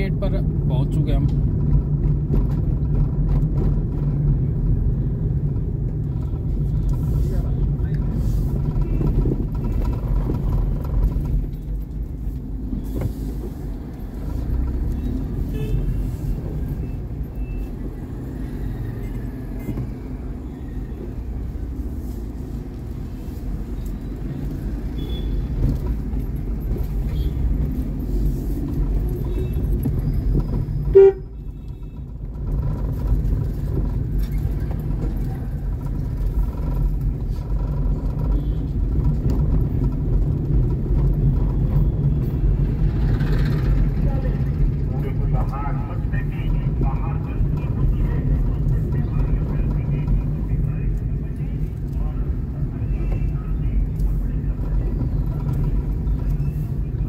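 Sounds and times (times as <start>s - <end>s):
road vehicle rumble: 0.0s - 57.0s
traffic horn toots: 15.4s - 16.0s, 25.0s - 25.5s, 30.8s - 32.0s.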